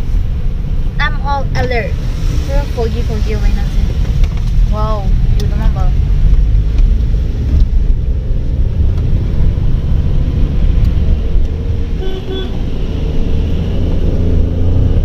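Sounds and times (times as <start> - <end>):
car engine and tyres on wet road: 0.0 - 15.0
vehicle horn toots: 12.0 - 13.0.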